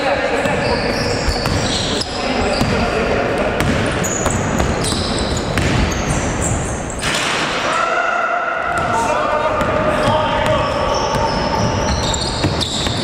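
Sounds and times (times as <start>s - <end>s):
echoing gym hall din: 0.0s - 13.0s
sneakers squeaking: 0.1s - 7.3s, 8.7s - 13.0s
basketball bouncing on floor: 3.6s - 6.2s.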